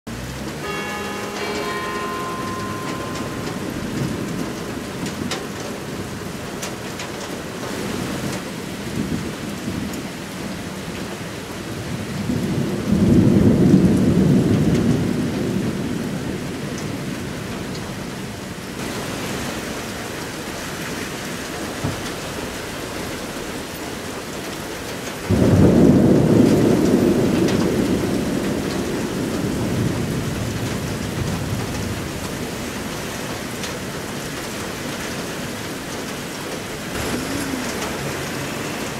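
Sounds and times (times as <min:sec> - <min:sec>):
steady rain: 0:00.1 - 0:38.9
thunder rumbling: 0:00.6 - 0:18.0, 0:25.2 - 0:38.9.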